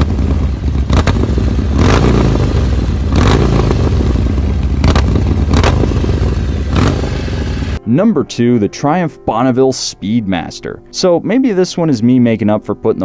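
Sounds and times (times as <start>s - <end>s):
motorcycle engine idling and revving: 0.0s - 7.8s.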